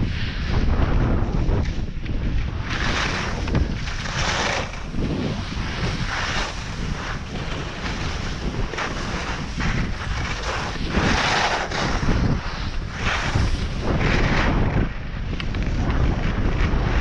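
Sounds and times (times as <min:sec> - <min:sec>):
wind buffeting microphone: 0:00.0 - 0:17.0
edges scraping packed snow: 0:02.5 - 0:14.7.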